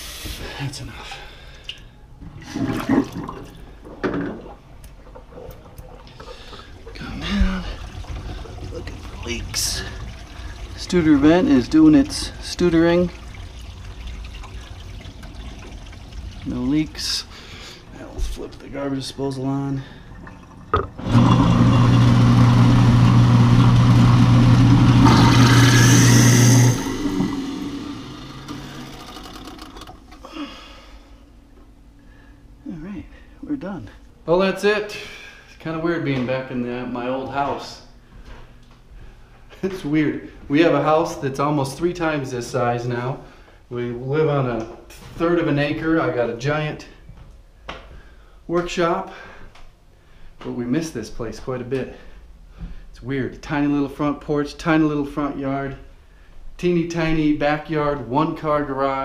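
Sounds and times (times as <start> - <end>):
garbage disposal motor hum: 0.0 - 34.5
sink water draining and gurgling: 1.5 - 30.3.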